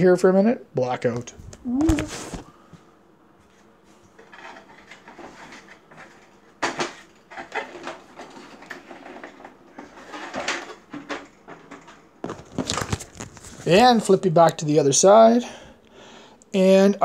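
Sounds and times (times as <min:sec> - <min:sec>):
objects knocking and clattering: 0:04.1 - 0:13.5.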